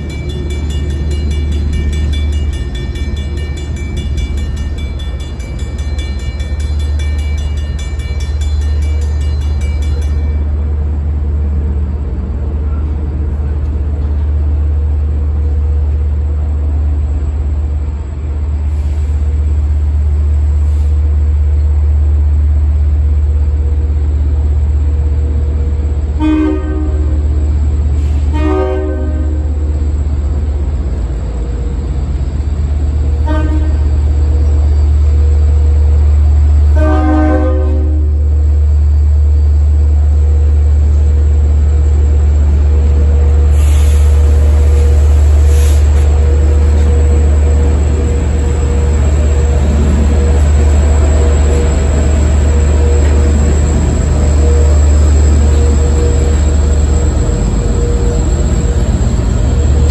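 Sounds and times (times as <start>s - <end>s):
railroad crossing bell ringing: 0.0s - 10.8s, 40.2s - 59.9s
train horn blasts: 26.1s - 27.4s, 28.0s - 29.6s, 33.1s - 34.1s, 36.6s - 38.2s.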